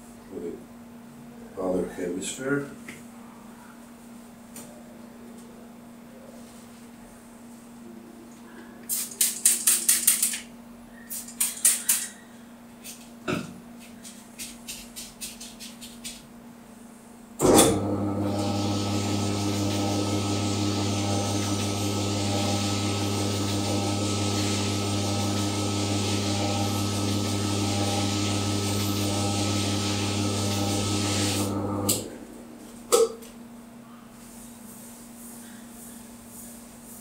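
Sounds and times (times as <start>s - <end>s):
ball spinner motor hum: 17.4s - 32.6s.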